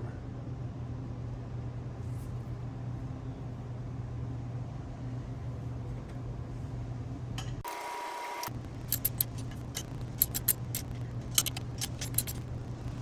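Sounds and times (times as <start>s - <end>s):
low motor hum: 8.5s - 13.0s.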